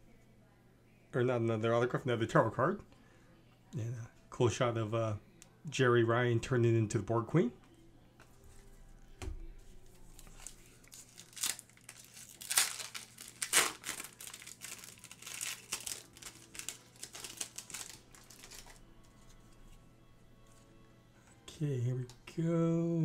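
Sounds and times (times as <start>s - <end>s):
foil wrapper tearing and crinkling: 10.1s - 18.8s.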